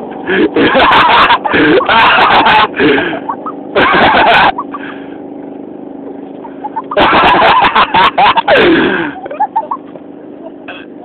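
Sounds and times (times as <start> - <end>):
lawn mower engine running: 0.0 - 11.0
people shouting and laughing: 0.7 - 4.8.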